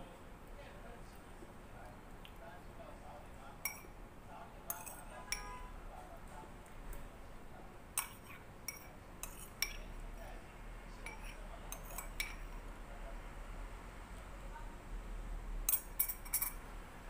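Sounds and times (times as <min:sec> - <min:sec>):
metal spoon clinking on dish: 0:03.6 - 0:04.0, 0:04.7 - 0:05.6, 0:08.0 - 0:10.4, 0:11.0 - 0:12.6, 0:15.7 - 0:16.6.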